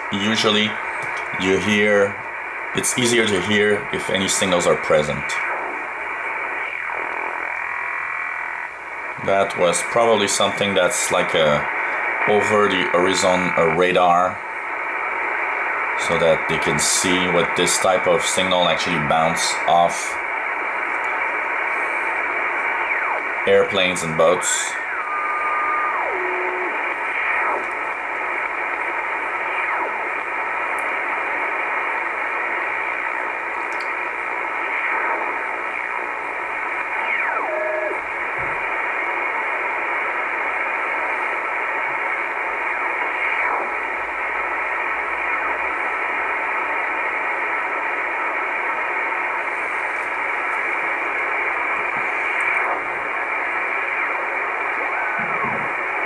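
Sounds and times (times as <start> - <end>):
radio band noise hiss: 0.0 - 56.0
radio whistles sliding in pitch: 20.6 - 33.4, 34.2 - 39.2, 52.1 - 55.9.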